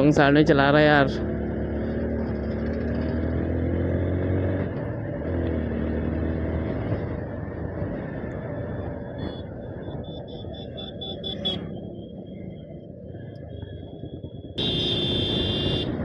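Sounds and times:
wind and road rush: 0.0 - 16.0
motorcycle engine revving: 1.0 - 12.1.

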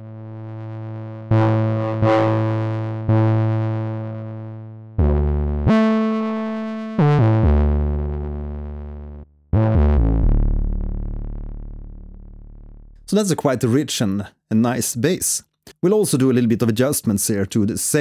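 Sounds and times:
deep synth bass notes: 0.0 - 13.1.

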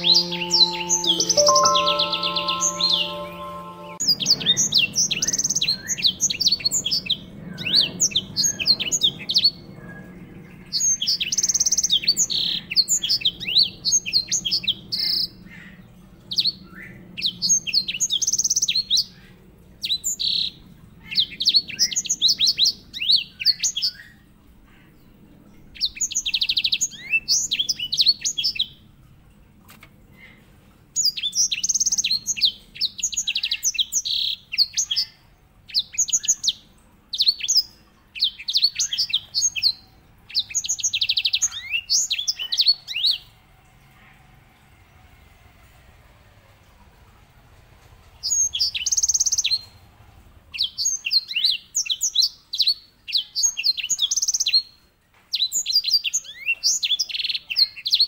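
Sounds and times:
finch singing chirps and trills: 0.0 - 4.0.

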